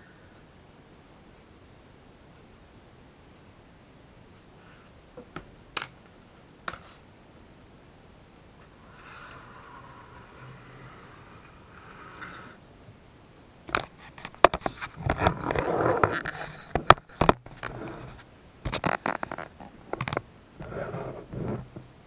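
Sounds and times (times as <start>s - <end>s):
soft rustle: 8.4s - 12.6s
scraping and rubbing: 8.6s - 12.6s, 13.8s - 16.7s, 17.4s - 19.5s, 20.6s - 21.8s.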